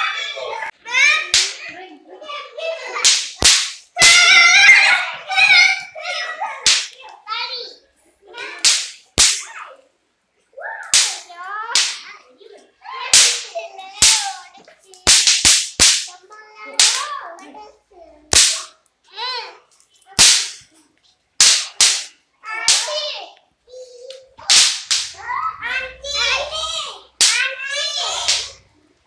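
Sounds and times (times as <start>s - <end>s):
children shouting and chattering: 0.0s - 15.2s, 16.1s - 21.1s, 22.4s - 29.0s
firecrackers cracking: 3.0s - 4.3s, 6.6s - 7.0s, 8.6s - 9.5s, 10.9s - 12.0s, 13.1s - 14.4s, 15.0s - 16.2s, 16.8s - 17.1s, 18.3s - 18.7s, 20.2s - 20.7s, 21.4s - 22.9s, 24.4s - 25.2s, 27.2s - 27.4s, 28.2s - 28.6s.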